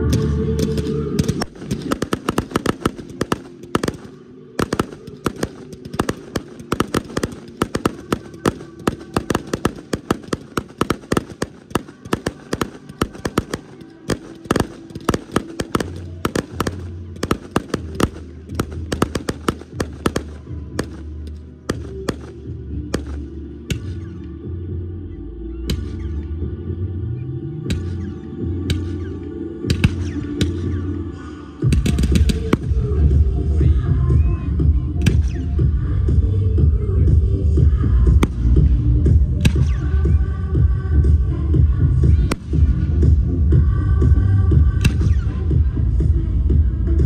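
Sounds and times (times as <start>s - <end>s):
music playing: 0.0s - 47.0s
fireworks bursting and crackling: 0.2s - 23.9s.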